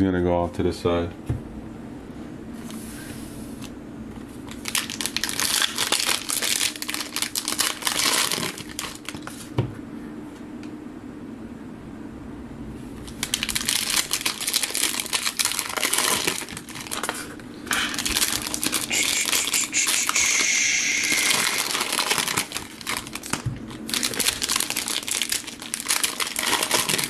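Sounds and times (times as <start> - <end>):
foil wrapper tearing and crinkling: 4.4 - 9.4, 13.1 - 20.4, 21.0 - 27.0.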